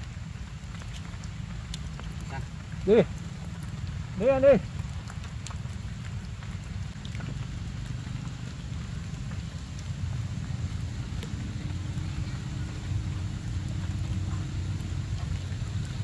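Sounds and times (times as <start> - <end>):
low rumble: 5.0 - 16.0.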